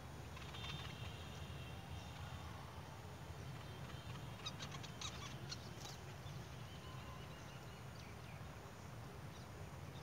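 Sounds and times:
faint bird chirps: 3.3s - 10.0s.

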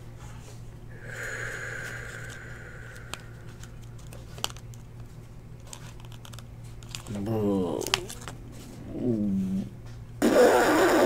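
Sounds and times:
foil wrapper crinkling: 5.6s - 8.4s.

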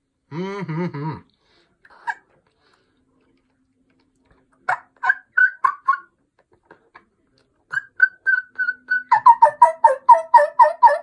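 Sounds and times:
turkey call yelps: 4.7s - 6.1s, 7.7s - 11.0s.

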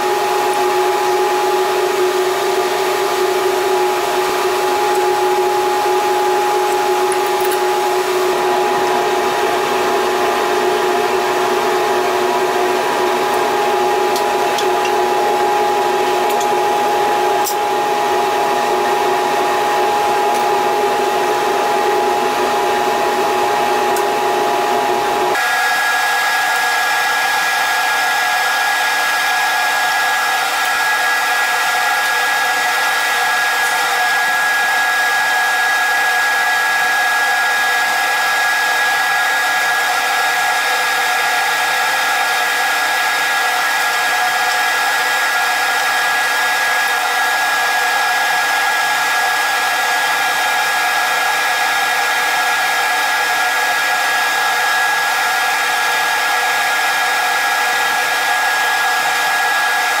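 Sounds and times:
high whine: 0.0s - 38.1s
workshop machinery running: 0.0s - 60.0s.

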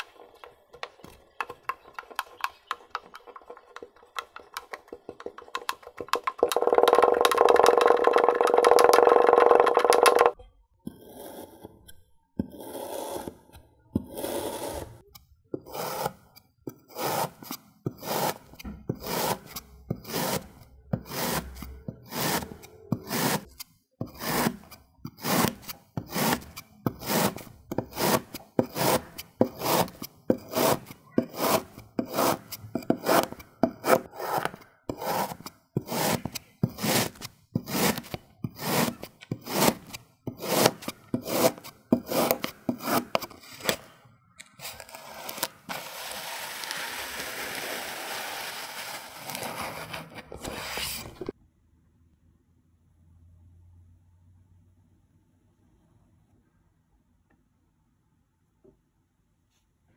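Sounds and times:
knife scraping kinetic sand: 8.9s - 11.8s, 12.4s - 43.9s, 44.6s - 51.4s.

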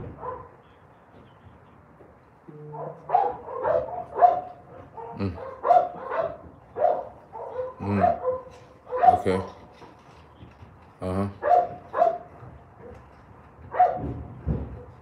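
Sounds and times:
dog barking: 0.0s - 0.6s, 2.7s - 9.6s, 11.4s - 13.0s, 13.6s - 14.9s.

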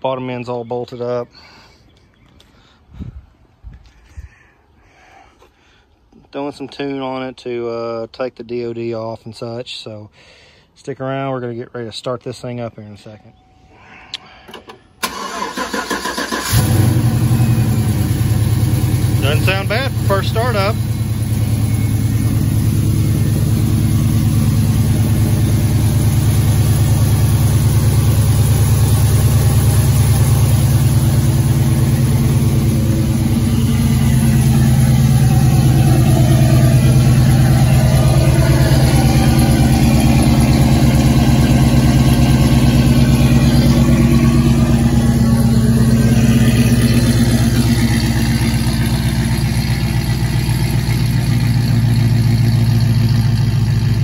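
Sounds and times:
truck engine idling: 14.6s - 54.0s.

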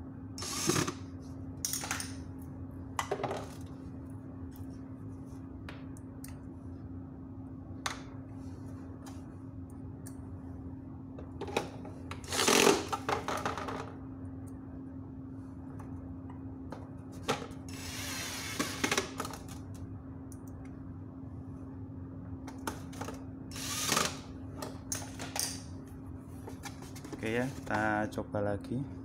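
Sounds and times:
steady low hum: 0.0s - 29.0s
electric screwdriver whirring: 0.4s - 1.0s.

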